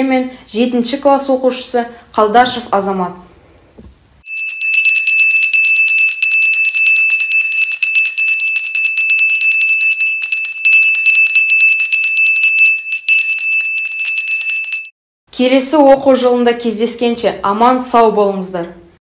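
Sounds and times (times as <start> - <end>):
hand bells ringing: 4.2 - 14.9.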